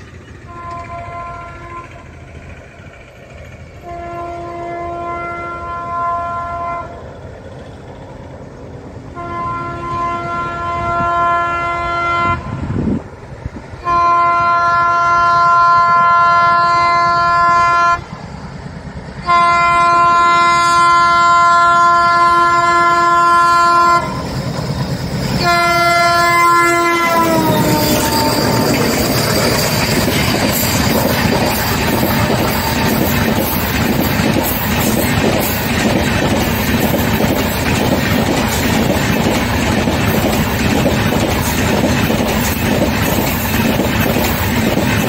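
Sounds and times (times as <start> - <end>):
train rumbling: 0.0 - 45.0
locomotive horn blasts: 0.5 - 2.0, 3.8 - 7.0, 9.1 - 12.8, 13.8 - 18.1, 19.2 - 24.4, 25.2 - 30.8.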